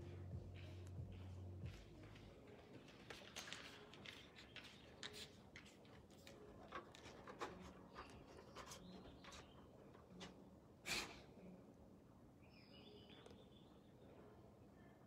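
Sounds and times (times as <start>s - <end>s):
dog moving ticks and rustles: 2.0s - 10.4s.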